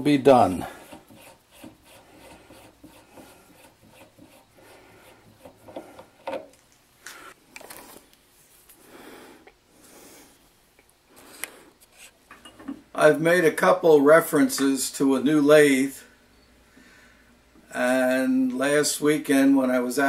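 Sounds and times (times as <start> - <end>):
hand rubbing metal drill chuck: 0.5 - 6.6.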